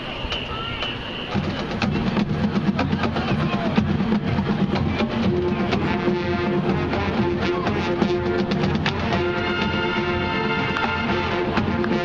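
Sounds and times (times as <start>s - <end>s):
marching drums and percussion: 0.0s - 12.0s
sustained brass tones: 4.7s - 12.0s.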